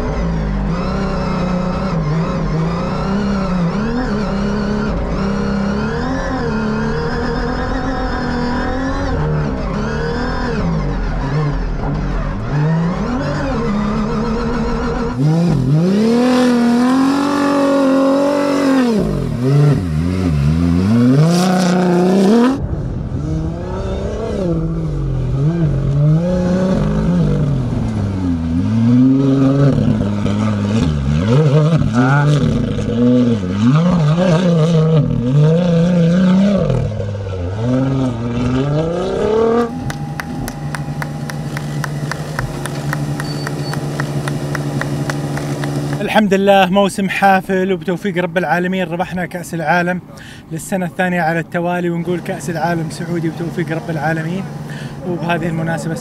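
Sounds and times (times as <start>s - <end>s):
car engine revving hard: 0.0s - 46.2s, 51.8s - 56.0s.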